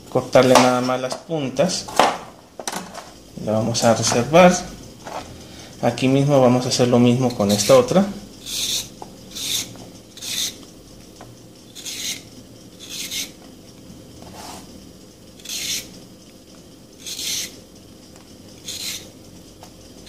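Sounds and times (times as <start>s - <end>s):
peeler scraping carrot: 7.2s - 10.7s, 11.7s - 13.4s, 15.4s - 16.0s, 17.0s - 17.6s, 18.6s - 19.2s.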